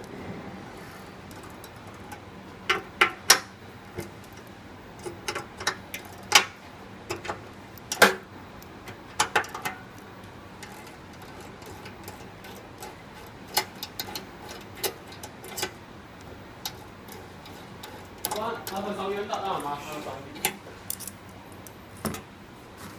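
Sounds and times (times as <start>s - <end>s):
metallic clicks of spanner and fittings: 10.6s - 15.8s, 20.4s - 21.2s.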